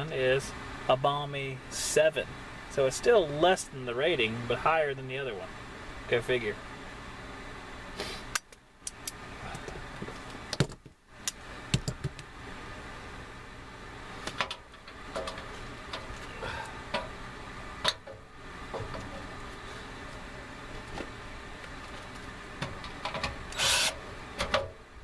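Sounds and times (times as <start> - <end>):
steady low hum: 0.0 - 25.0
clicks and knocks of handling parts: 14.2 - 16.3, 20.9 - 23.4, 24.4 - 24.8.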